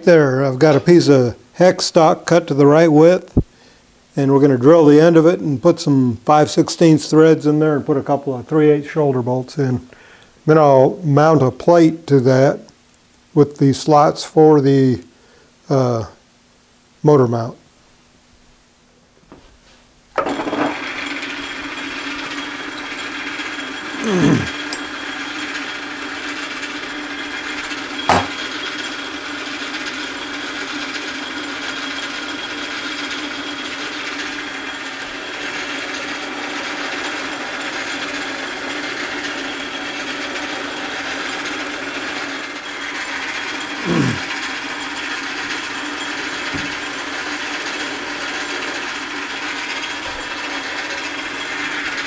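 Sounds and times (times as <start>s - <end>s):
metal lathe drilling: 20.2s - 52.0s
sharp knock: 28.1s - 28.4s.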